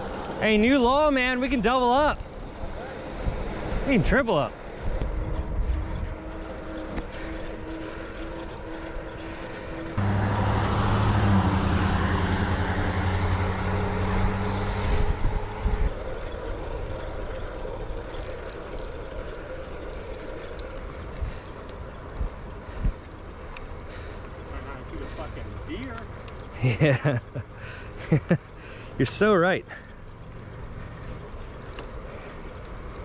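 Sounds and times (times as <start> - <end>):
road and wind noise: 0.0 - 33.0
vehicle passing by: 1.7 - 18.8.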